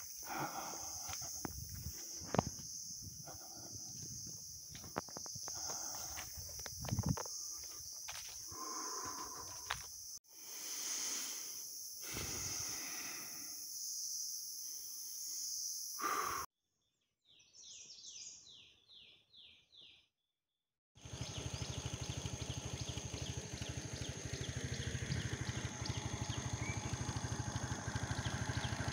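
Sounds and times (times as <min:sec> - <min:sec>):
scooter engine idling: 0:00.0 - 0:09.9, 0:21.0 - 0:28.9.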